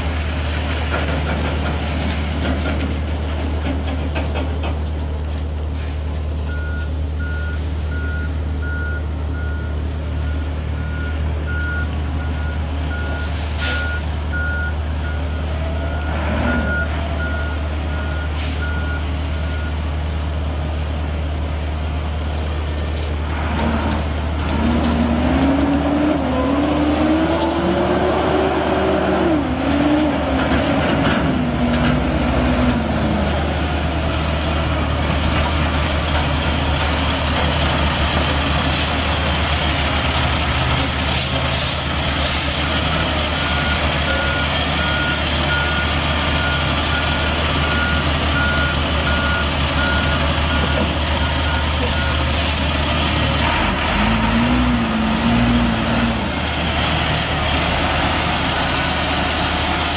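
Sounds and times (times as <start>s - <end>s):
diesel truck engine running: 0.0s - 59.9s
short air hisses: 41.1s - 42.6s.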